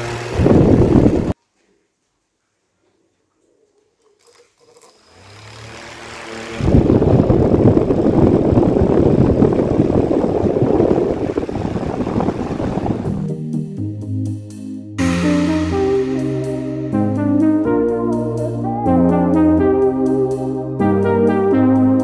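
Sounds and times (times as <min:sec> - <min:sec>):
small fan motor humming: 0:00.0 - 0:01.4, 0:04.0 - 0:13.2
wind rumble on microphone: 0:00.3 - 0:01.4, 0:06.6 - 0:13.2.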